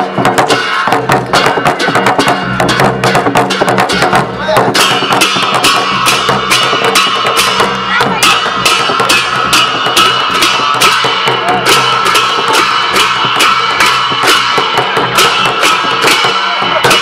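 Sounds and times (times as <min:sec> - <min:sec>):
brass cymbals clashing: 0:00.0 - 0:17.0
drum beat: 0:00.0 - 0:17.0.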